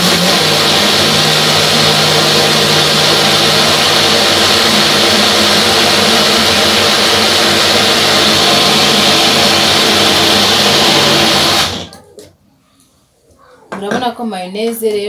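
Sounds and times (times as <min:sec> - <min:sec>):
blender motor running: 0:00.0 - 0:11.9.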